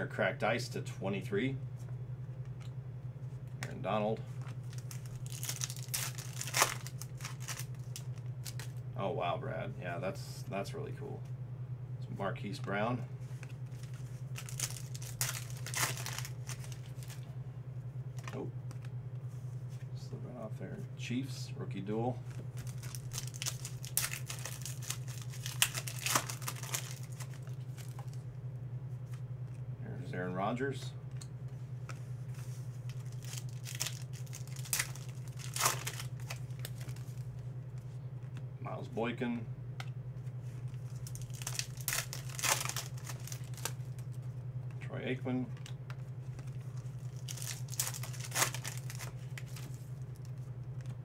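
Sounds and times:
steady low hum: 0.0 - 51.0
foil wrapper crinkling: 4.4 - 8.8, 13.6 - 17.2, 22.3 - 28.2, 32.8 - 37.3, 40.7 - 44.2, 46.3 - 50.9.

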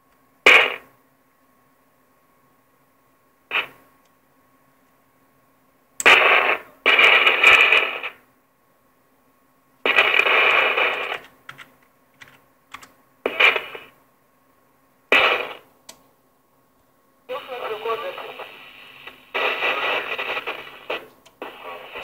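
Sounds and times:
radio static crackle and hiss: 0.4 - 1.0, 3.4 - 4.0, 6.0 - 8.4, 9.8 - 11.4, 13.2 - 14.2, 15.0 - 15.8, 17.2 - 22.0.

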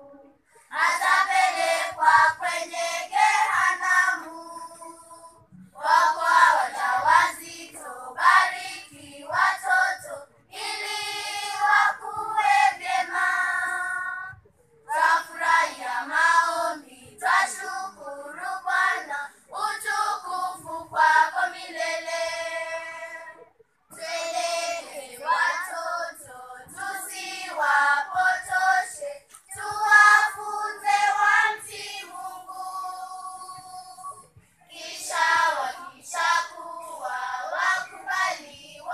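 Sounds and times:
children's choir singing: 0.0 - 38.9.

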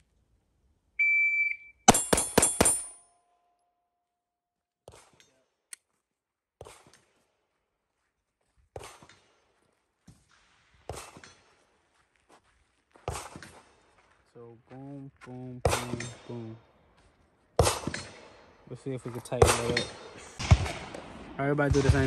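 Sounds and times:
shot timer beep: 1.0 - 2.0
pistol shots: 1.9 - 3.0, 15.6 - 16.3, 17.6 - 18.6, 19.4 - 22.0.

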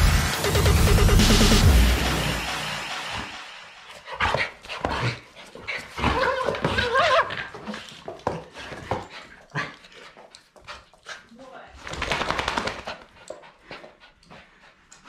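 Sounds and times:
dog panting: 3.8 - 15.0
dog whining: 5.8 - 7.5.

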